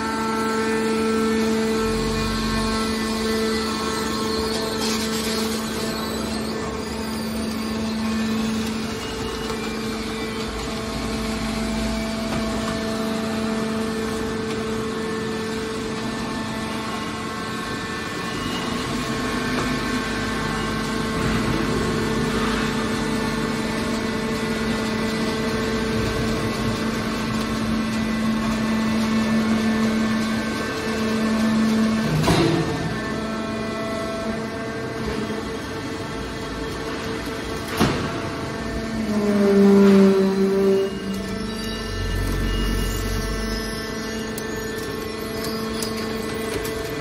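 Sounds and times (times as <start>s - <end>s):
hydraulic machine hum: 0.0s - 47.0s.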